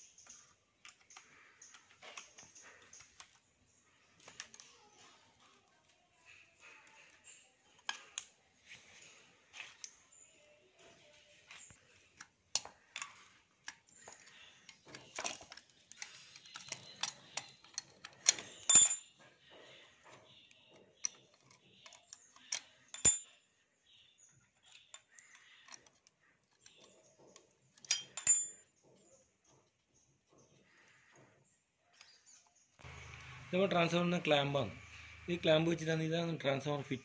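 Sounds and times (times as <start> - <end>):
sharp metallic clinks: 16.4 - 19.2, 22.2 - 23.5, 27.8 - 28.8.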